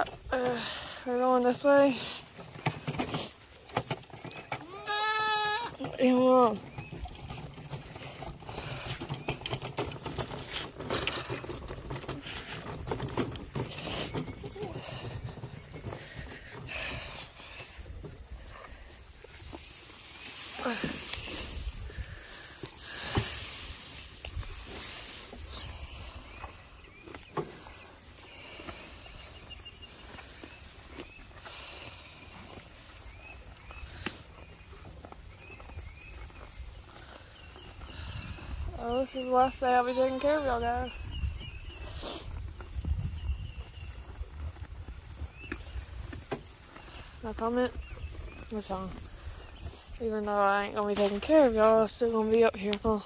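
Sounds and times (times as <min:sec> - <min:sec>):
hay rustling and crackling: 0:17.4 - 0:53.0.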